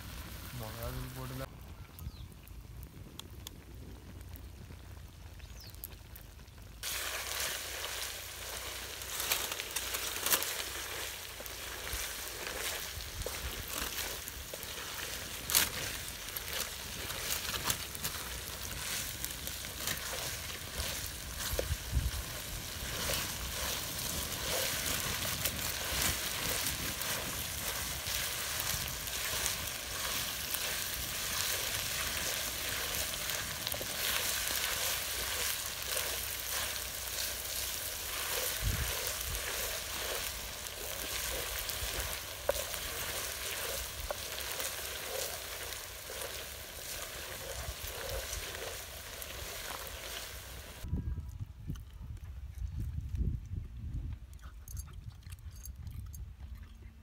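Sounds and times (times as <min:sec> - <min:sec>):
chicken sizzling in oil: 0:05.4 - 0:50.9.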